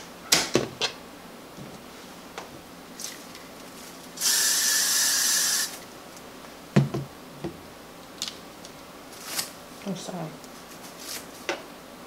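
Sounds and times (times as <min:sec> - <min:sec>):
aerosol spray hissing: 0:04.2 - 0:05.8.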